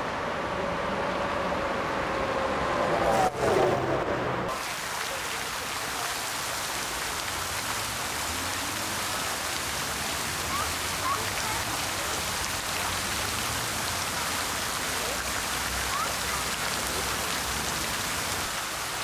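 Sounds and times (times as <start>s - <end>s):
fountain water splashing into basin: 4.5s - 19.0s.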